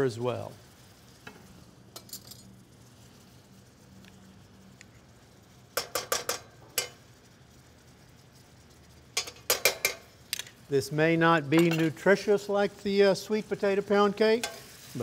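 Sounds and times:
metal spoon clinking on dishes: 0:09.2 - 0:10.5, 0:11.5 - 0:12.0, 0:14.4 - 0:14.7.

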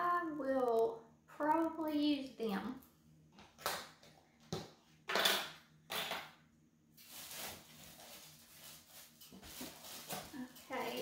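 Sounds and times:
packaging rustling and clattering: 0:07.0 - 0:11.0.

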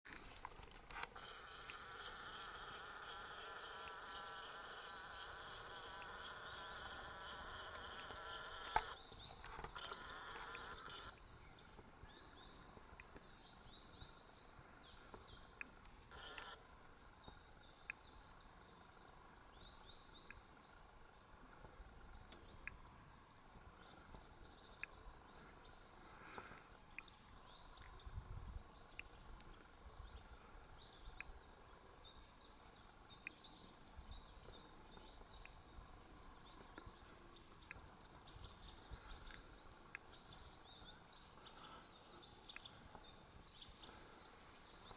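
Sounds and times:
insect buzzing: 0:00.7 - 0:09.0, 0:09.6 - 0:11.2, 0:16.1 - 0:16.6.

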